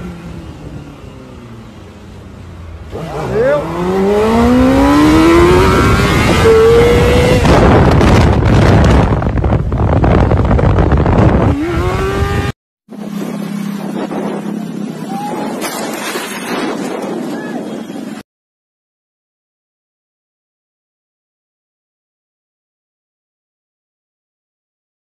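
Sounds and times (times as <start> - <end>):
rushing wind and road noise: 0.0 - 18.2
motorcycle engine revving: 2.6 - 15.0
wind on microphone: 4.1 - 18.2.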